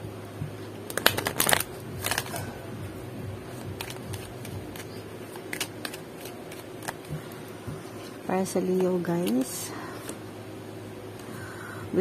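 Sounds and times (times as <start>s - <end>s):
cards shuffled by hand: 0.9s - 2.6s, 3.5s - 10.2s.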